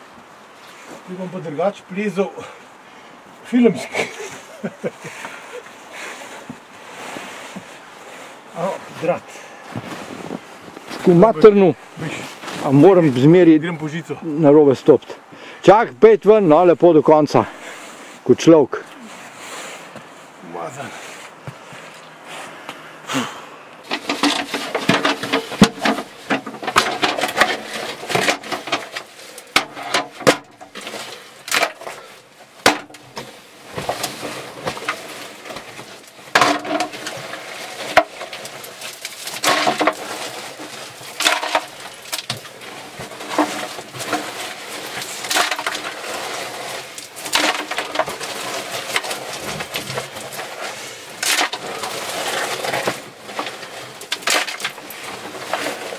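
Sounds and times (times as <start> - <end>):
rubble loaded into bucket: 8.5 - 14.2, 23.8 - 55.9
rock and rubble knocked and scraped: 23.8 - 55.9.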